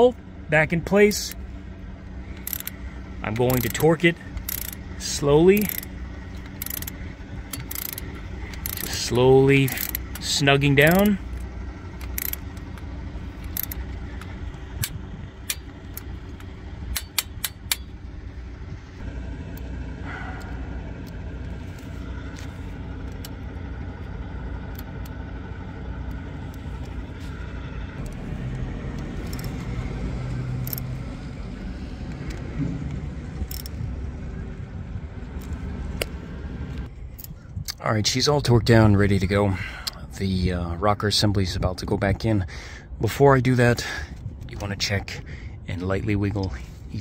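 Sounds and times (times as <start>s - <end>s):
handling of wiring: 0.0s - 19.0s, 20.8s - 28.3s
steady low rumble: 0.0s - 47.0s
torque wrench ratcheting clicks: 2.3s - 18.0s, 29.0s - 29.6s, 30.6s - 30.9s, 33.4s - 33.8s.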